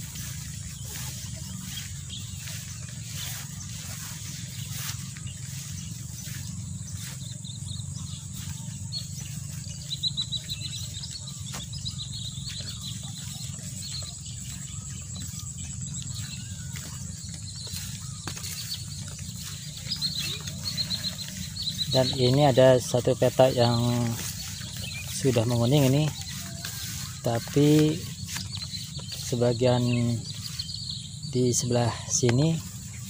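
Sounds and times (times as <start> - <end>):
low steady rumble: 0.0 - 29.4
chirping animal calls: 0.0 - 33.0
steady high-pitched drone: 0.0 - 33.0.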